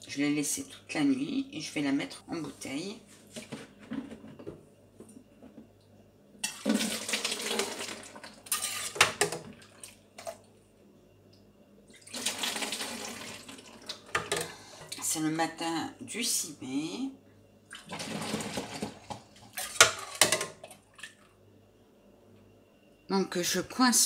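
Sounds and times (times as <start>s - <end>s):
ladle stirring sloshing liquid: 17.7s - 21.3s.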